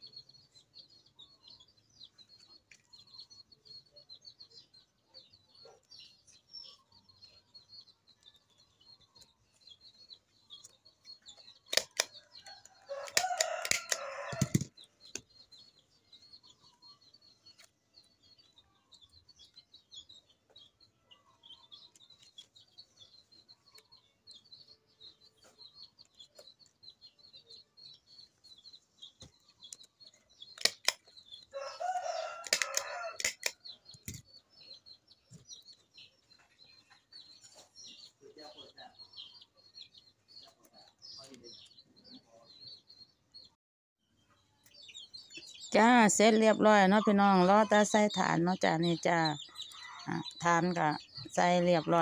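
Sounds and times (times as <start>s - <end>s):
stapler clicking shut: 30.6s - 31.0s.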